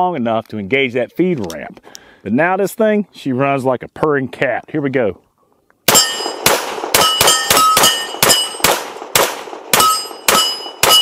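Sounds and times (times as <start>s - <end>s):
metallic ring of steel plate: 5.9s - 6.4s, 7.0s - 8.7s, 9.8s - 11.0s
pistol shots: 5.9s - 11.0s.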